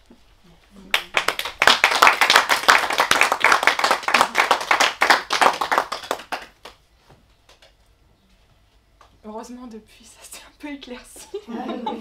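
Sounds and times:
audience applauding: 0.9s - 6.8s.

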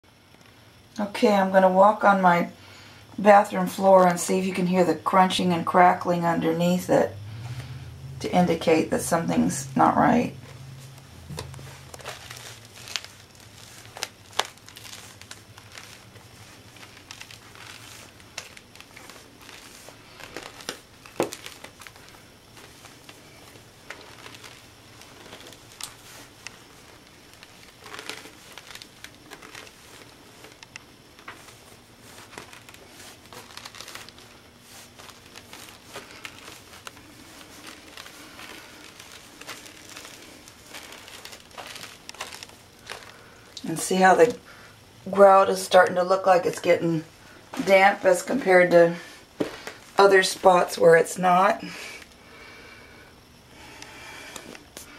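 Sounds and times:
floor tiles crackling underfoot: 7.5s - 52.4s, 53.6s - 54.9s.

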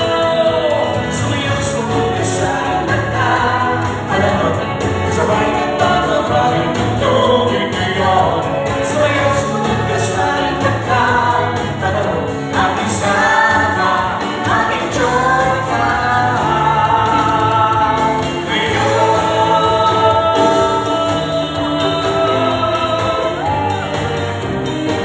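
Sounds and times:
musical accompaniment: 0.0s - 25.0s
woman singing into microphone: 9.8s - 23.9s.

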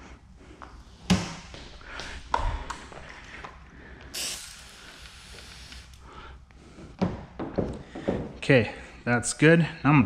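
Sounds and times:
hand pump sprayer hissing: 4.1s - 6.0s.

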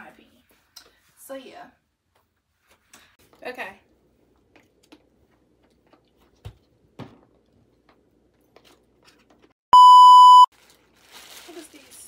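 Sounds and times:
loud electronic beep: 9.8s - 10.5s.

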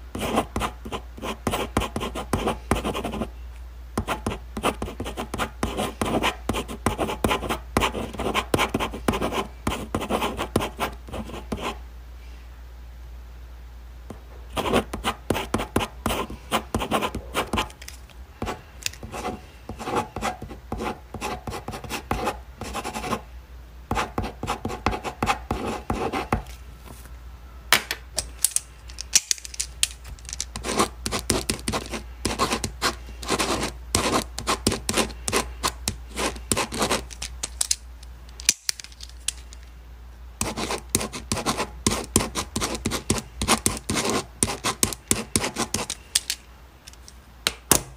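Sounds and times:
low steady hum: 0.0s - 47.9s
pen scratching on paper: 0.1s - 3.3s, 4.0s - 11.8s, 14.6s - 17.7s, 18.4s - 23.2s, 30.6s - 37.1s, 40.4s - 45.9s.

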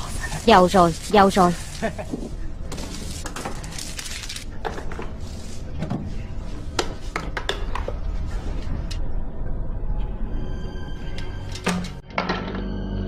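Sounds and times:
low rumble: 7.9s - 12.0s.

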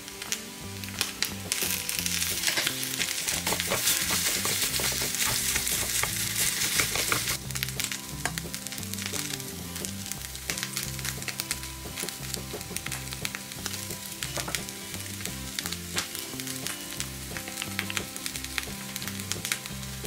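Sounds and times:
rice sizzling in a pan: 0.0s - 20.0s
soft background music: 0.0s - 20.0s
chopsticks clicking on pan: 2.3s - 7.4s.

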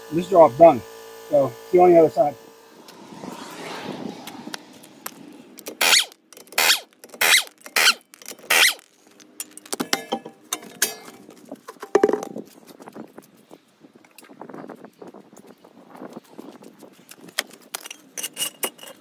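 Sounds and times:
pneumatic impact wrench: 5.6s - 8.9s
metal clinks and clatter: 6.3s - 12.4s.

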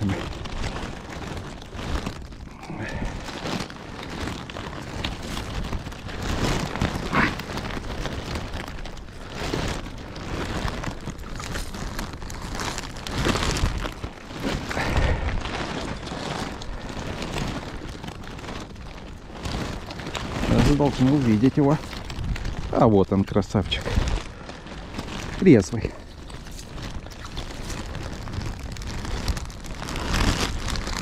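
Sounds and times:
rain falling: 0.0s - 31.0s
wind rumbling on microphone: 0.0s - 31.0s.

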